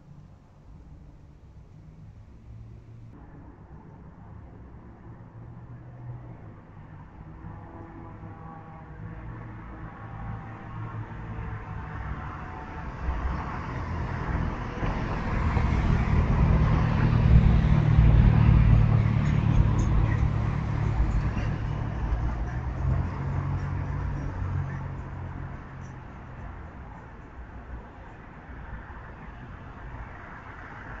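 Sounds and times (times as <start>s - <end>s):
car driving past: 8.0s - 27.1s.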